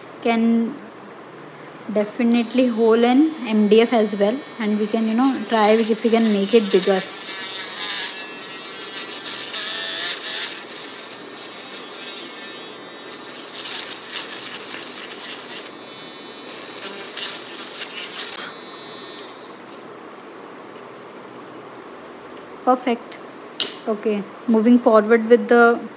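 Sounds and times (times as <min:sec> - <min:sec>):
drill bit scratching board: 0:02.3 - 0:19.8
electric mini drill whining: 0:02.3 - 0:19.8.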